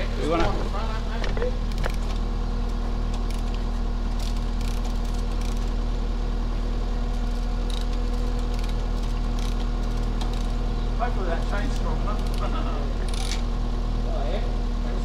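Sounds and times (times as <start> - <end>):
engine idling: 0.0 - 15.0
chain hoist chain clicking and rattling: 3.2 - 5.8, 7.2 - 10.6, 11.3 - 13.5.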